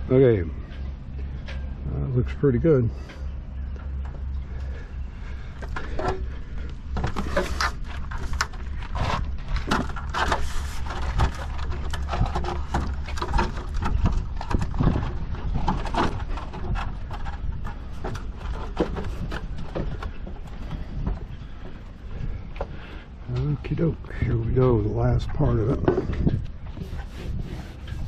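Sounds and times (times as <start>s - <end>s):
wind rumble on microphone: 0.0s - 28.0s
metal ladder clanking: 5.6s - 21.8s.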